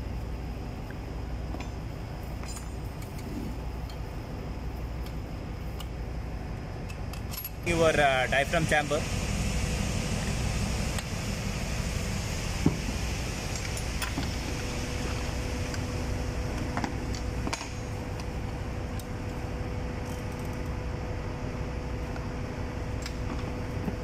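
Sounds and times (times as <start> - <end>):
machinery and ventilation hum: 0.0 - 24.0
spanners clicking on metal bolts: 6.9 - 7.6.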